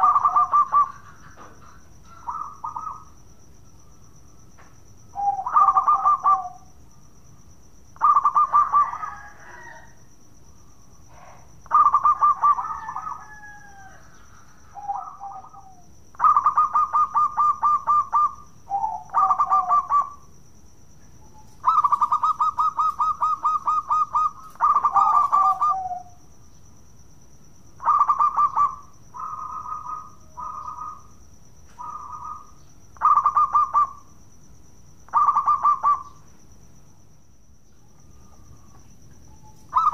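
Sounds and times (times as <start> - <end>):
dove cooing: 0.0 - 3.2, 5.1 - 6.7, 8.0 - 9.9, 11.1 - 20.3, 21.2 - 26.2, 27.8 - 31.1, 31.7 - 34.1, 35.1 - 36.2, 39.4 - 39.9.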